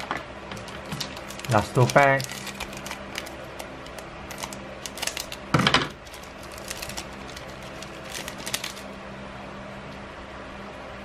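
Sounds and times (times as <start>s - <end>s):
foil crinkling: 0.0s - 8.9s
scissors cutting foil wrapper: 0.6s - 8.9s.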